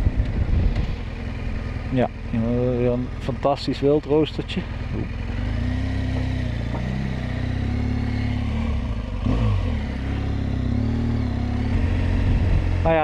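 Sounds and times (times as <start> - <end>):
motorcycle engine running: 0.0 - 13.0
motorcycle bump: 6.0 - 7.2.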